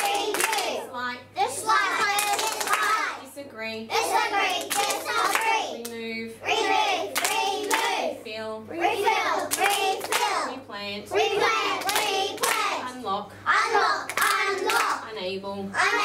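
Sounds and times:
children clapping: 0.0s - 0.8s, 2.0s - 3.1s, 4.5s - 5.6s, 7.1s - 7.9s, 9.4s - 10.4s, 11.7s - 12.7s, 14.1s - 15.0s
children chanting in unison: 13.5s - 15.0s.

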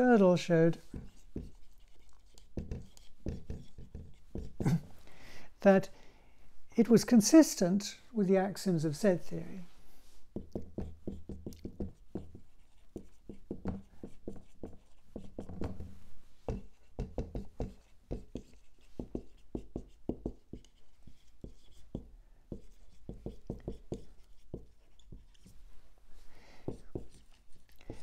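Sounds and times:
writing on a board: 0.8s - 4.8s, 10.3s - 25.6s, 26.6s - 28.0s.

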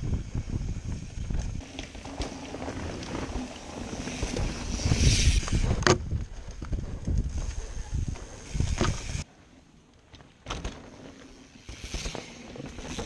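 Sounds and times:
wind on microphone: 0.0s - 1.6s, 2.6s - 9.2s
bike tyres hissing through leaves: 0.0s - 5.8s, 7.2s - 9.2s, 11.3s - 13.0s
bike rumbling over dirt trail: 0.0s - 9.2s, 10.2s - 13.0s.

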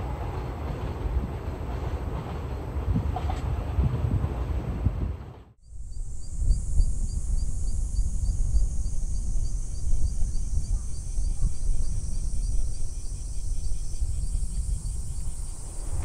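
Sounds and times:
insects buzzing: 5.6s - 16.0s
rhythmic insect chirp: 5.6s - 16.0s.

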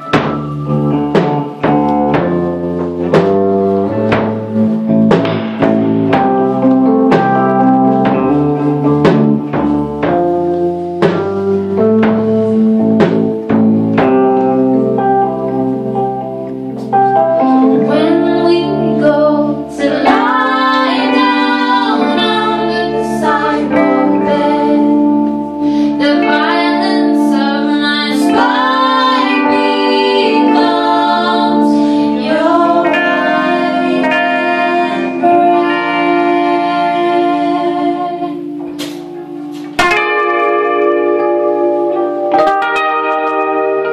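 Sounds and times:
strong struck note: 0.0s - 2.5s
drum hits: 0.0s - 14.3s
keyboard chords: 0.0s - 43.9s
sustained tones: 17.0s - 43.7s
women singing in harmony: 17.4s - 38.8s.

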